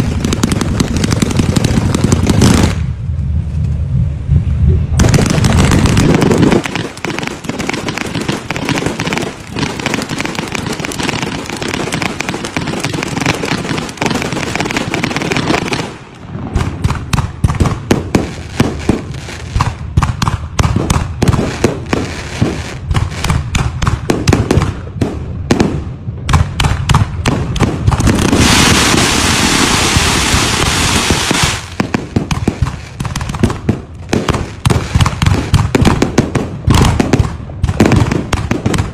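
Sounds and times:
sharp firework cracks: 0.0 - 3.0, 5.0 - 38.9
dense hissing crackle: 0.0 - 4.0, 4.6 - 17.6, 27.8 - 36.0
fireworks bangs and crackling: 0.0 - 4.0, 4.9 - 38.9.

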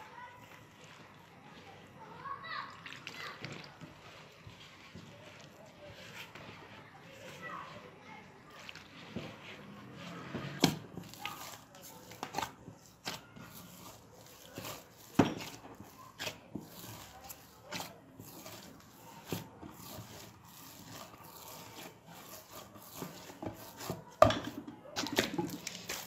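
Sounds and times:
hands kneading dough: 0.0 - 26.0
dough thumping: 9.0 - 26.0.

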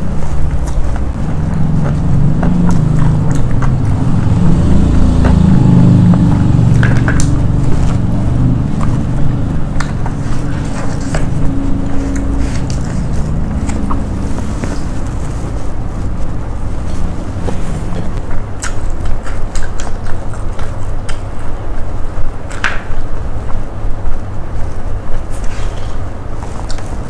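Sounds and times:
steady low rumble: 0.0 - 27.0
chewing with mouth clicks: 0.5 - 15.5, 17.0 - 21.8.

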